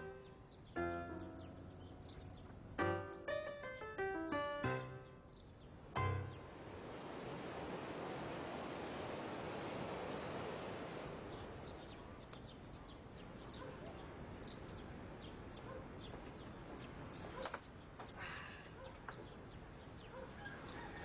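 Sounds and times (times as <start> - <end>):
small birds chirping: 0.0 - 7.0, 11.0 - 21.0
surf on a pebble beach: 6.4 - 12.1.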